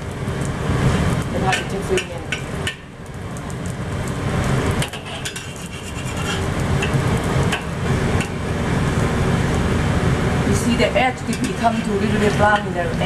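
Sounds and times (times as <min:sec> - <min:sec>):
pancake frying in oil: 0:00.0 - 0:13.0
metal spatula scraping wok: 0:04.7 - 0:08.4, 0:11.2 - 0:12.7.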